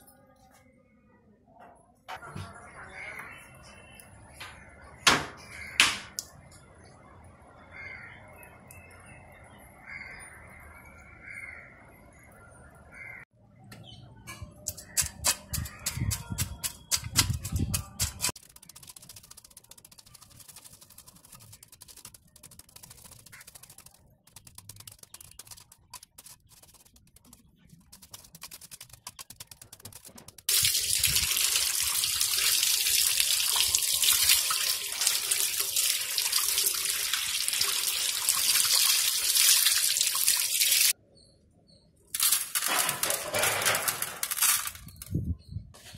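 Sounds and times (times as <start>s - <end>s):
cleaver scraping fish scales: 14.8s - 30.5s
tap water gushing: 28.5s - 40.9s.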